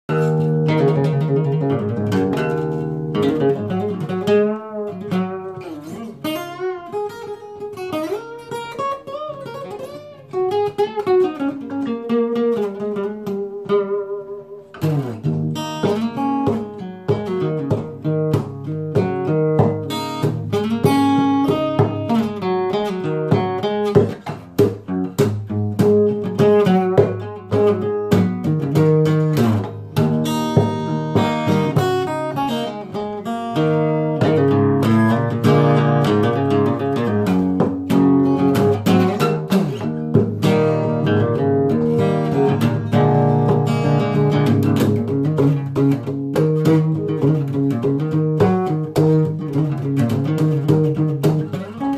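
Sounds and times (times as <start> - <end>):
acoustic blues guitar: 0.0 - 51.9.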